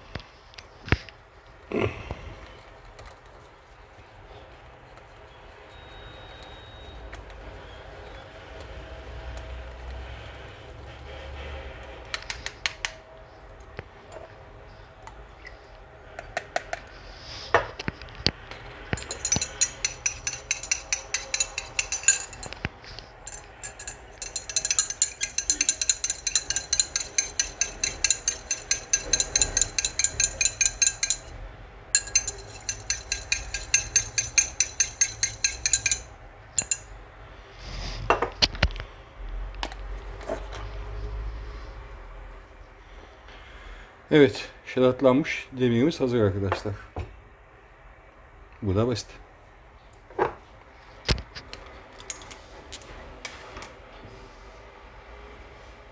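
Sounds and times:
stirring rod clinking in glass beaker: 19.0s - 22.6s, 23.2s - 31.4s, 32.0s - 36.9s.

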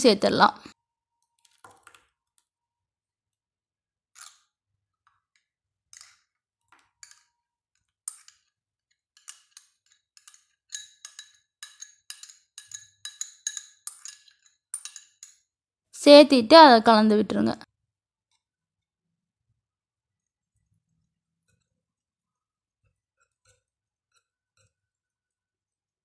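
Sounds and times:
metal spoon scraping glass bowl: 9.1s - 15.4s.

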